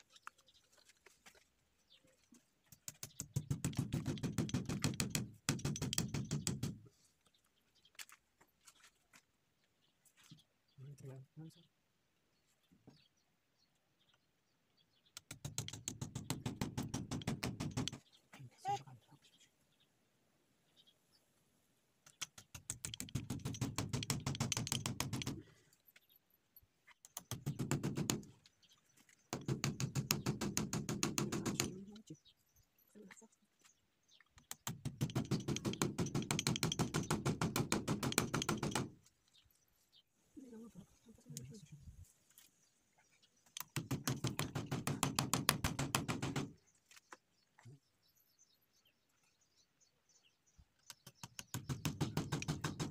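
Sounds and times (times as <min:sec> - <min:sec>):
hammer tapping nails: 0:02.7 - 0:06.8, 0:15.2 - 0:18.1, 0:22.1 - 0:25.4, 0:27.0 - 0:28.3, 0:29.3 - 0:31.8, 0:34.4 - 0:39.0, 0:43.6 - 0:46.6, 0:50.9 - 0:52.9.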